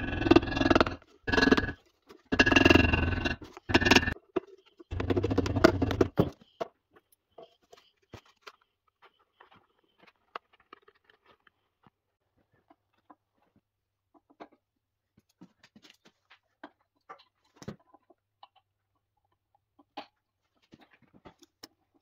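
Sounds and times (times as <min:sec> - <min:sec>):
hammer tapping gasket paper: 0:04.9 - 0:06.3.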